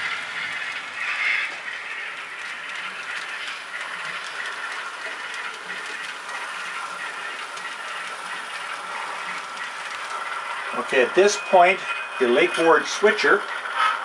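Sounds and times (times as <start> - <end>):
model train rolling: 0.0 - 14.0.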